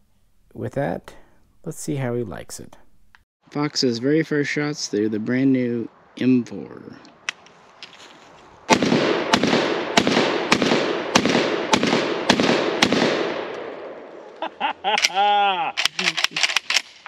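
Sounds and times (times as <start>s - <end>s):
shotgun shots with echo: 8.7s - 13.9s.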